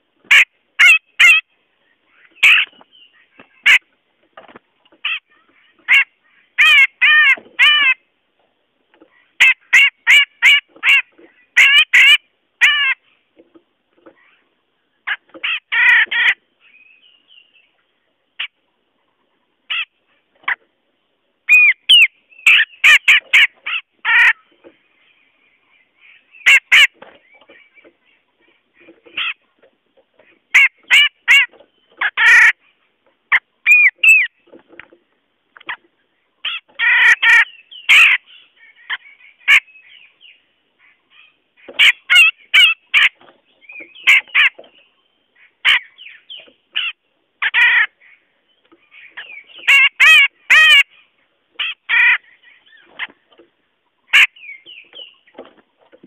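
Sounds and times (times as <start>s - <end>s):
bird calling sharp notes: 0.3s - 3.9s, 21.5s - 24.7s, 25.8s - 29.4s, 33.3s - 34.6s, 35.6s - 48.3s, 48.9s - 53.4s, 54.0s - 55.5s.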